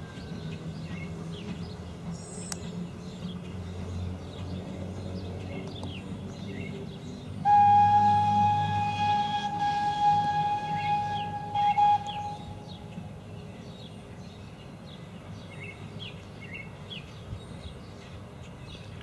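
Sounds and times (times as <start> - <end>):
steam locomotive rumbling: 0.0 - 15.9
steam whistle blast: 7.4 - 12.8.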